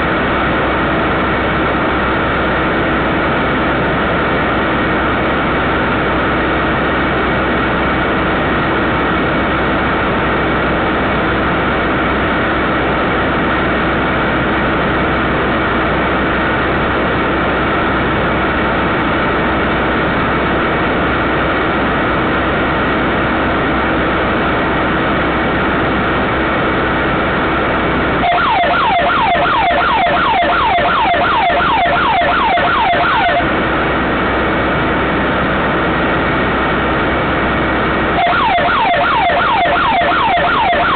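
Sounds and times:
electrical hum and hiss: 0.0 - 40.9
security siren wailing: 28.2 - 33.7, 38.1 - 40.9.

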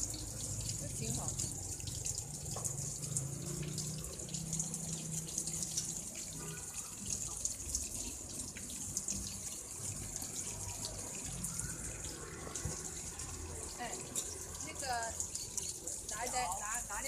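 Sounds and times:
water running from a tap: 0.0 - 17.0.

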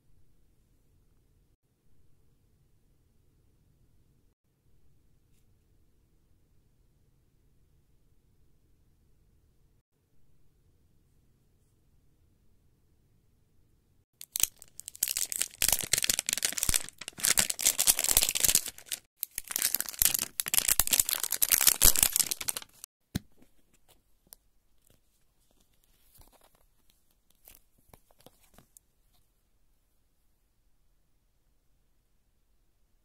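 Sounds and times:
wrapper tearing and crinkling: 14.2 - 22.9.

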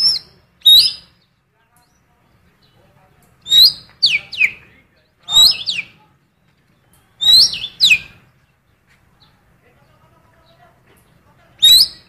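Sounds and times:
songbird whistling calls: 0.0 - 1.3, 3.4 - 8.3, 11.5 - 12.0.

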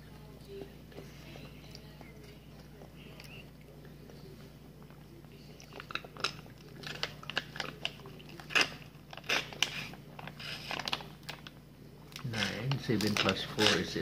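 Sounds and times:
foil juice pouch crinkling: 5.8 - 11.6.

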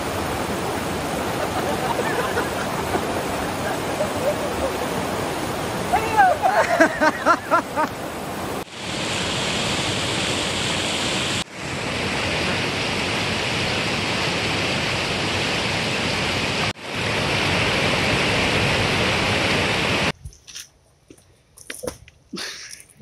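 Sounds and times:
river pouring over rocks: 0.0 - 8.7.

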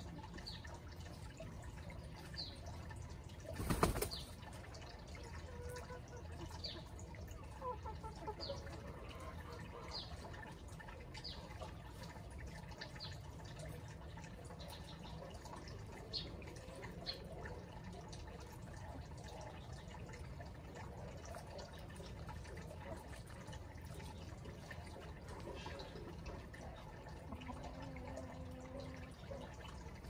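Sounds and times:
chicken wings flapping: 3.5 - 4.3.

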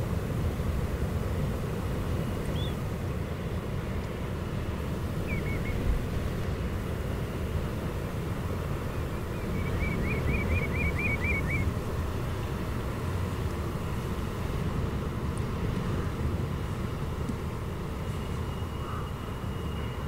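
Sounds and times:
low outdoor rumble: 0.0 - 20.0
bird calling short notes: 9.4 - 11.6.

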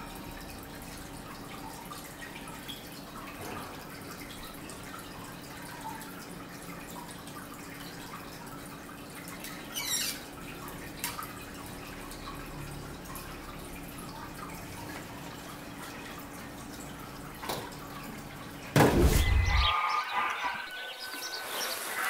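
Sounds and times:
water dripping: 0.0 - 18.8
loud thump: 18.8 - 19.7.

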